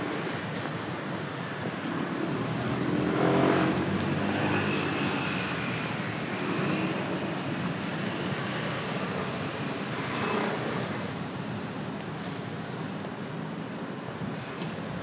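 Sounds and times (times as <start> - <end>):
background traffic noise: 0.0 - 15.0
motor vehicle passing: 1.9 - 11.1.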